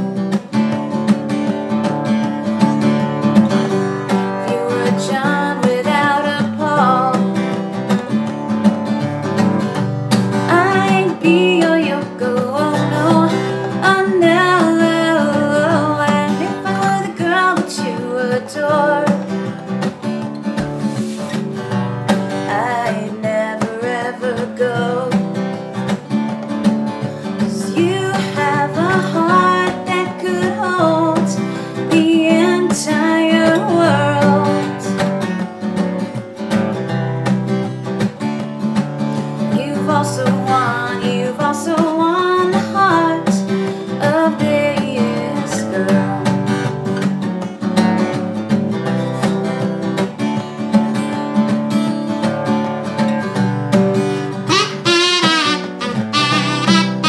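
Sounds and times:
acoustic guitar: 0:00.0 - 0:57.0
woman singing: 0:04.2 - 0:07.7, 0:10.4 - 0:19.6, 0:22.4 - 0:25.6, 0:27.2 - 0:35.1, 0:39.4 - 0:46.6, 0:54.4 - 0:57.0.

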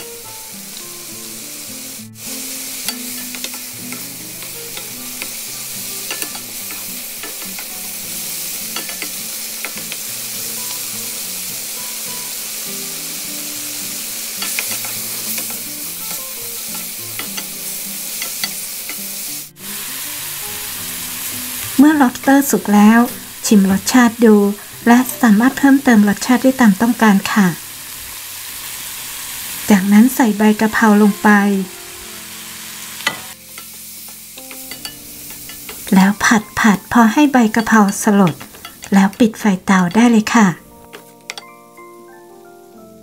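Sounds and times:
food sizzling in a wok: 0:00.0 - 0:43.0.

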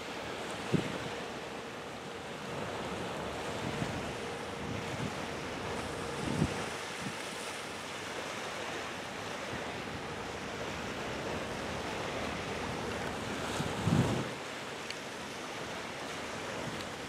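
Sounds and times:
water at shoreline: 0:00.0 - 0:17.0
wind: 0:00.0 - 0:17.0
wind buffeting microphone: 0:03.3 - 0:07.3, 0:12.1 - 0:14.5.

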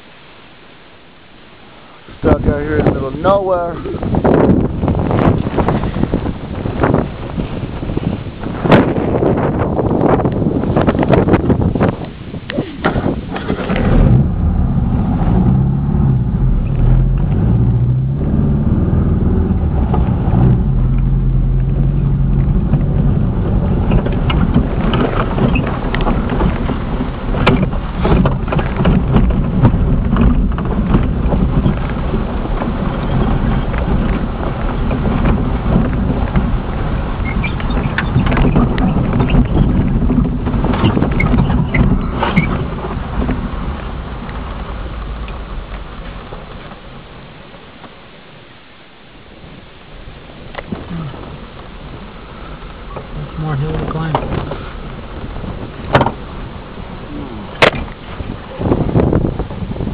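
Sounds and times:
car engine running: 0:09.9 - 0:47.6
car body rattling and banging: 0:12.8 - 0:46.7, 0:52.8 - 0:59.9.

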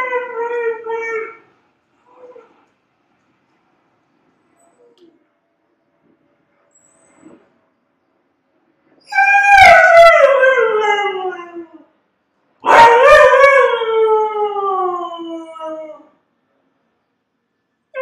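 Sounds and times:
husky howling: 0:09.1 - 0:11.8, 0:12.6 - 0:16.1.

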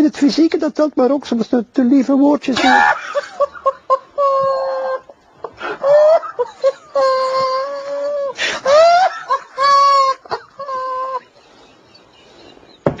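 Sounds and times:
man's stifled laughter: 0:02.6 - 0:11.4.

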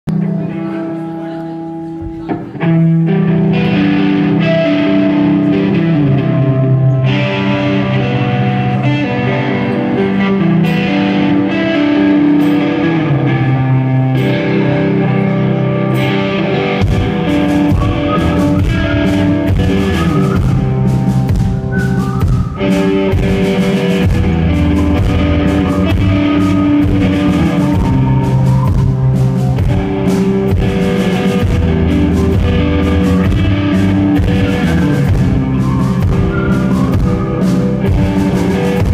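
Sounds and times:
electric guitars: 0:00.0 - 0:38.9
rock band playing live: 0:00.1 - 0:38.9
drum kit: 0:16.0 - 0:38.9.

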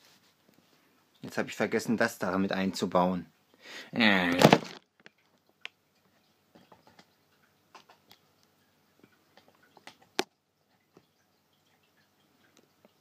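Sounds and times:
plastic parts clicking and tapping: 0:06.5 - 0:08.2, 0:09.3 - 0:11.1.

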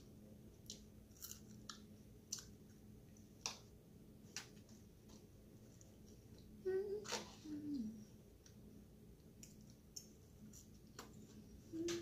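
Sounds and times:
person chewing salad: 0:00.6 - 0:02.6.

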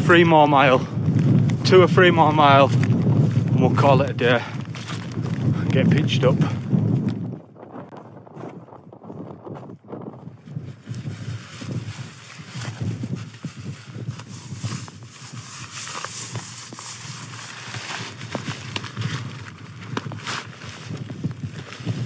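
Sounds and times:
strong wind buffeting microphone: 0:00.0 - 0:22.0
rucksack and jacket rustling: 0:10.7 - 0:22.0.

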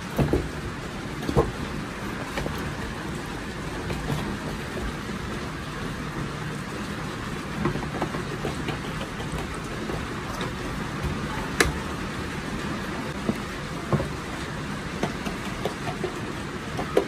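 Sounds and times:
steady background hum: 0:00.0 - 0:17.0.

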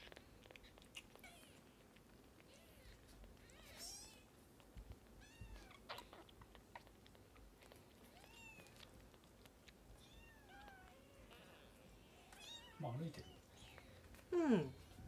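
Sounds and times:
kitten suckling clicks: 0:00.0 - 0:11.4.

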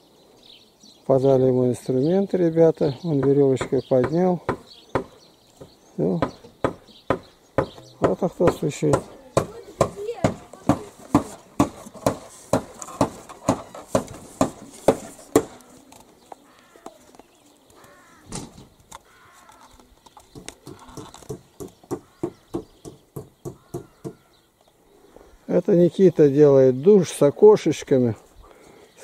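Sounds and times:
hammer blows on wood: 0:03.2 - 0:15.6.

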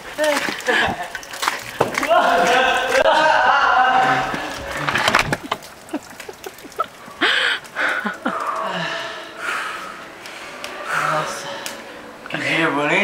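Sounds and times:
people gasping breathily: 0:00.4 - 0:01.8, 0:04.0 - 0:12.2.

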